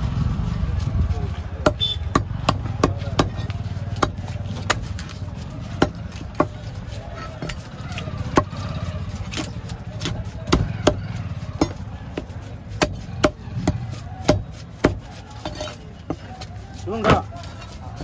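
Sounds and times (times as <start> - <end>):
knife chopping on wooden block: 1.6 - 6.6, 8.3 - 8.6, 9.3 - 16.3.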